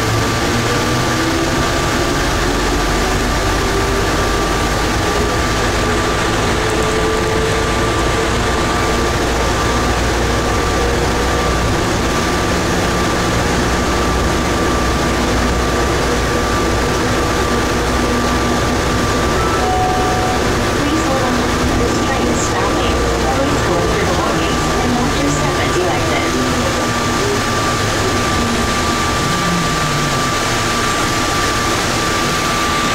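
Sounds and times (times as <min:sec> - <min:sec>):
train rolling rumble and hiss: 0:00.0 - 0:32.9
motor whine rising in pitch: 0:18.5 - 0:22.0
steady high tone: 0:19.0 - 0:24.0.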